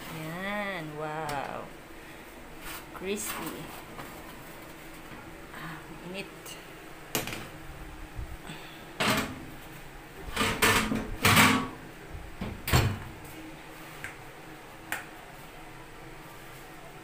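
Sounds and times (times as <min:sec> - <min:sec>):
knocks and scraping in kitchen: 0:02.6 - 0:05.3, 0:09.0 - 0:11.8.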